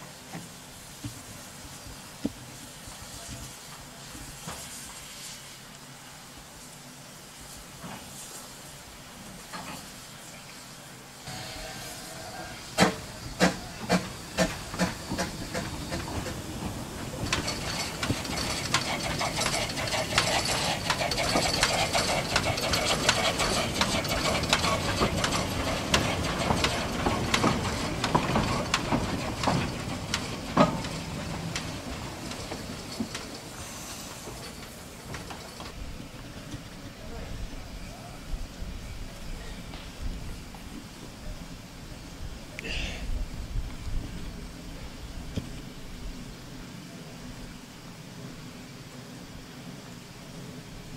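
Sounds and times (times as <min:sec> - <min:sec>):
steam hiss: 0:00.0 - 0:50.9
steam locomotive exhaust beats: 0:00.0 - 0:50.9
locomotive chuffing: 0:09.9 - 0:42.3.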